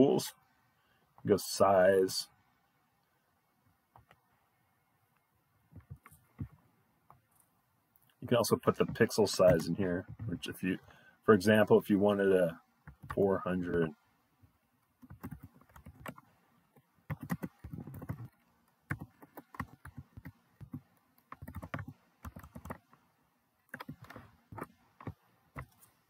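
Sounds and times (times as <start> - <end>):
computer keyboard typing: 12.9 - 13.2, 15.0 - 16.3, 17.1 - 23.0, 23.7 - 25.9.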